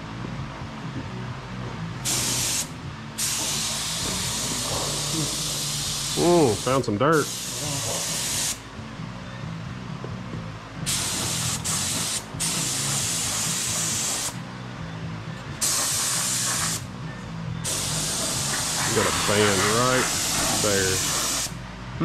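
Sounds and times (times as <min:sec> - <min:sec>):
steady low hum: 0:00.0 - 0:22.0
paint spray gun hissing: 0:02.1 - 0:08.6, 0:10.9 - 0:14.4, 0:15.6 - 0:16.9, 0:17.6 - 0:21.6.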